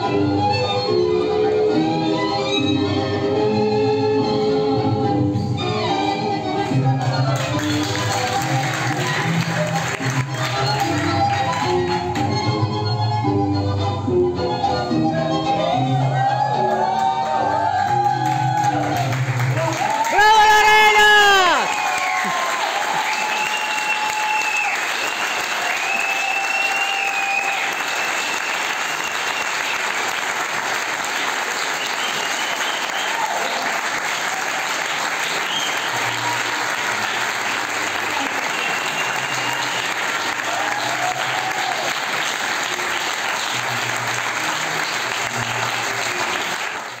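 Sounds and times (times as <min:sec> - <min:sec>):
large audience applauding: 0:07.0 - 0:12.4, 0:16.2 - 0:47.0.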